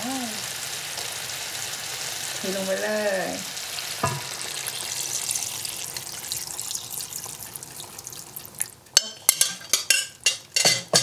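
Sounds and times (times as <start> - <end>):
liquid pouring and splashing: 3.8 - 8.8.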